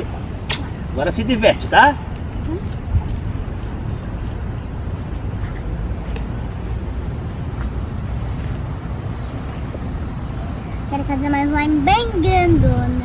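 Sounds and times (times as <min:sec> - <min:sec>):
outdoor background rumble: 0:00.0 - 0:13.0.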